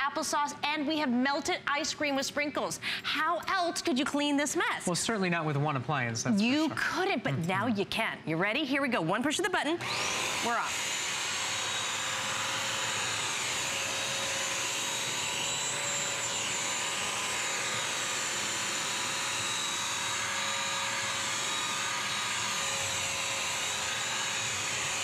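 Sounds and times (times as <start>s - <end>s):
vacuum mop motor whine: 9.8s - 25.0s.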